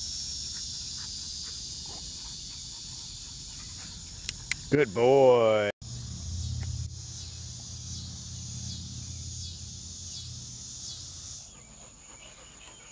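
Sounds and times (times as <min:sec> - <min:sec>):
insects hissing: 0:00.0 - 0:05.1, 0:05.8 - 0:12.9
low steady rumble: 0:05.8 - 0:11.3.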